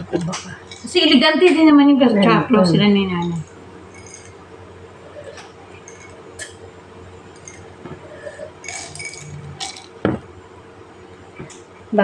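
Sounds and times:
dishes and glassware clinking: 2.6s - 4.4s, 5.3s - 6.6s, 7.3s - 10.2s
knock on table: 10.0s - 10.3s.

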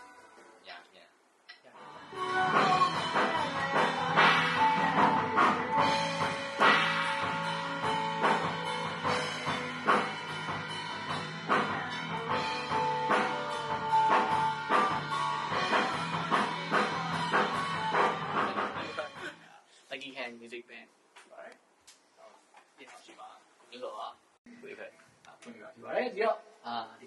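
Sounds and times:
rock music: 1.8s - 19.4s
drum kit beat: 1.8s - 19.5s.

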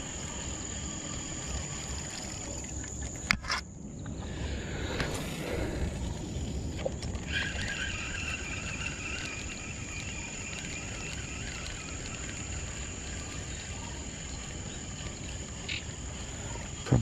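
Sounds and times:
rough whirring: 4.2s - 17.0s
high-pitched insect buzzing: 7.2s - 17.0s.

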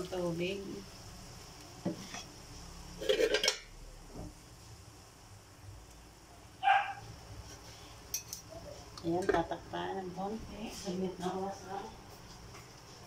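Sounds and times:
metal spatula scraping wok: 1.8s - 3.8s.

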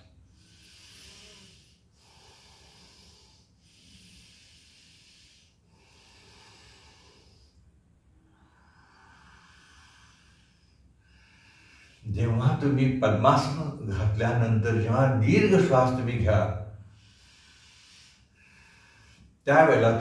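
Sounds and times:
deep breathing through the nose: 0.0s - 12.1s, 16.7s - 20.0s.

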